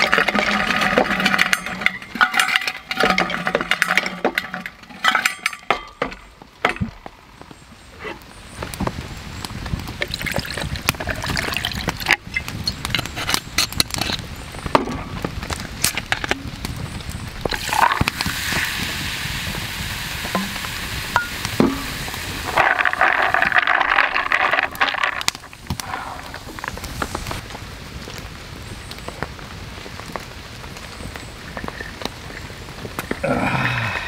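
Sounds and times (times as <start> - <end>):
ice crackling and clinking: 0.0 - 7.1, 9.9 - 27.4, 31.0 - 34.0
soda water fizzing: 10.0 - 12.2, 17.5 - 27.4
liquid pouring over ice: 10.1 - 12.1, 21.6 - 25.3.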